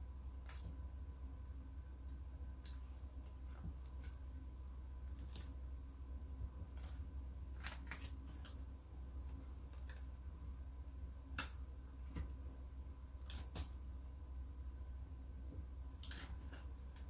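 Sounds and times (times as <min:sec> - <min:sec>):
steady low hum: 0:00.0 - 0:17.0
vinyl peeling clicks and rustles: 0:07.6 - 0:08.6.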